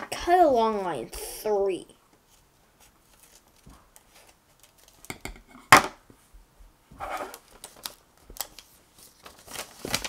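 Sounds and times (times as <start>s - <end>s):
card rustling: 2.3s - 5.1s, 7.2s - 10.0s.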